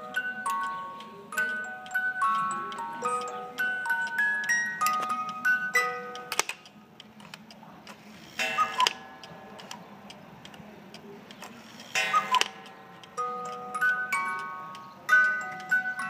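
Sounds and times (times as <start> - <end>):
clock ticking: 0.0 - 6.5
clock tones: 0.0 - 6.8, 7.9 - 16.0
music box tune: 0.0 - 6.8, 8.3 - 9.8, 11.9 - 16.0.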